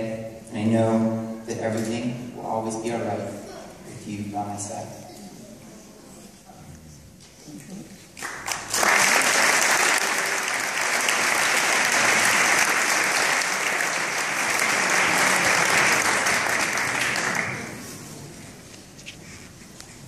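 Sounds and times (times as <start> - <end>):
people applauding: 8.0 - 18.0.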